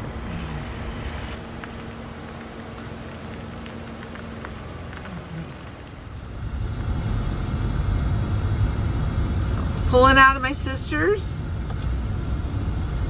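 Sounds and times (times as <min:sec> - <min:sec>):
crickets chirping: 0:00.0 - 0:08.0
faint steady hum: 0:00.0 - 0:13.0
van engine and road rumble: 0:00.0 - 0:13.0.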